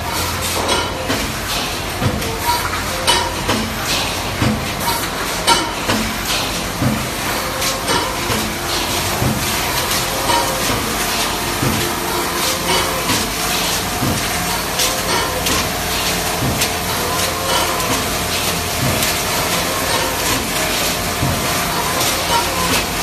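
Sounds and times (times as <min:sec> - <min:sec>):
machine hum and hiss: 0:00.0 - 0:23.0.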